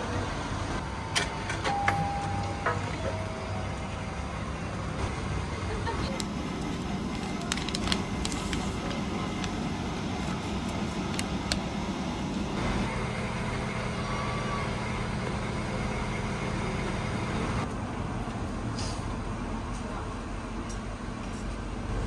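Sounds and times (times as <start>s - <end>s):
paper crinkling: 7.1s - 9.5s.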